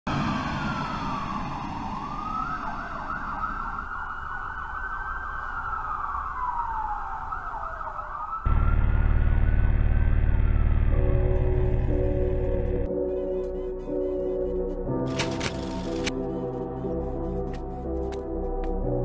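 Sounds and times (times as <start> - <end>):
siren wailing: 0.1 - 15.0
loud deep music: 8.5 - 19.0.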